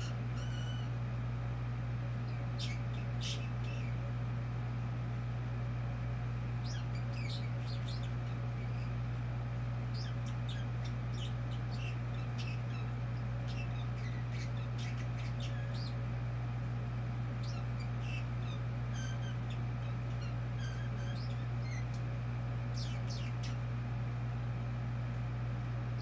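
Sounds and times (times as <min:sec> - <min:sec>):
bird chirping and clicking: 0:00.0 - 0:00.9, 0:02.3 - 0:04.0, 0:06.6 - 0:09.0, 0:09.9 - 0:16.0, 0:17.4 - 0:23.7
steady low hum: 0:00.0 - 0:26.0.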